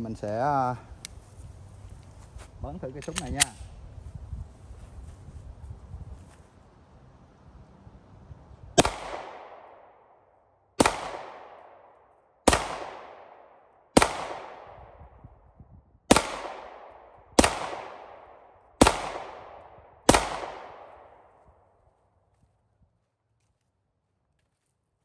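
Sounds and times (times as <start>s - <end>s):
pistol shots echoing: 8.8s - 10.0s, 10.8s - 14.8s, 16.1s - 21.3s.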